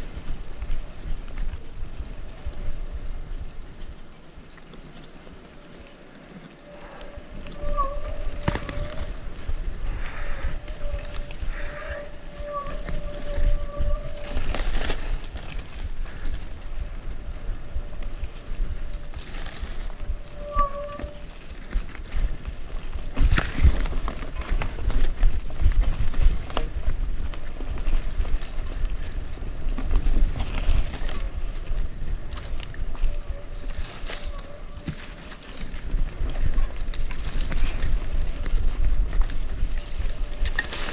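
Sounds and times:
steady thin whine: 0.0 - 23.6
bike tyres rumbling on dirt: 0.0 - 40.9
wind on microphone: 0.0 - 40.9.

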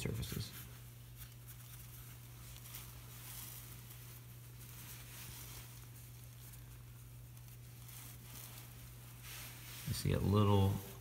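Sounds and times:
paper towel rubbing metal: 0.0 - 11.0
steady low hum: 0.0 - 11.0.

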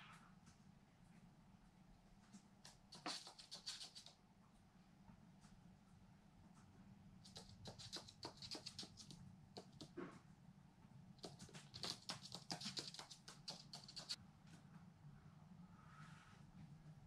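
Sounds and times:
bird tapping on hard floor: 11.2 - 14.2.

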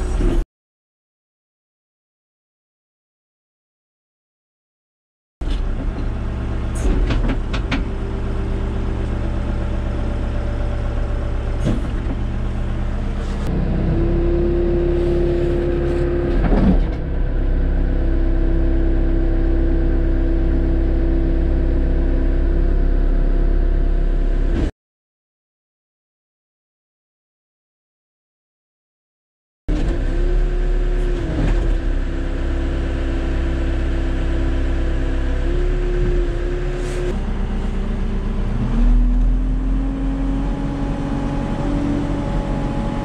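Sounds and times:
diesel engine running: 5.4 - 24.7, 29.8 - 43.0
clunk: 6.7 - 8.0, 11.6 - 12.3, 16.3 - 17.1.

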